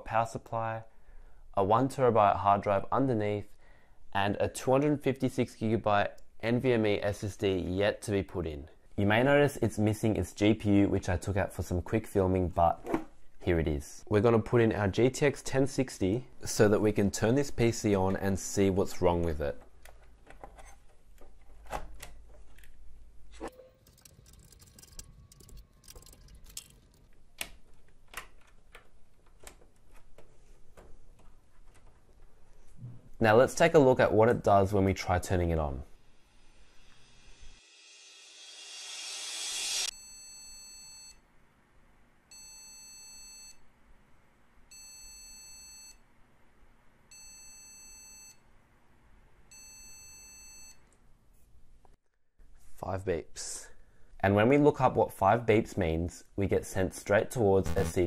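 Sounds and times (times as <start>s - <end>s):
long high-pitched computer beeps: 57.7s - 58.0s.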